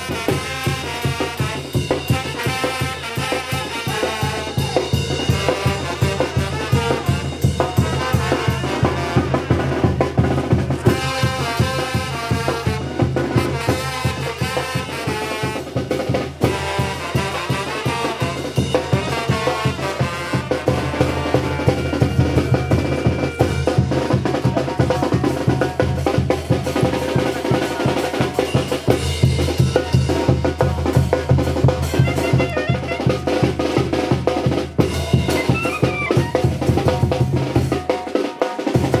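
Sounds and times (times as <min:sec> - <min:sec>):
horns playing: 0:00.0 - 0:09.9, 0:10.8 - 0:24.2, 0:31.8 - 0:33.7
drums beating fast rhythm: 0:00.0 - 0:39.0.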